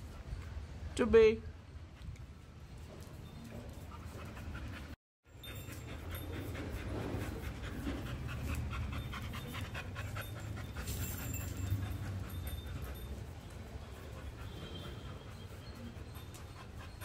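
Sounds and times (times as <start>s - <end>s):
dog panting: 3.7s - 17.0s.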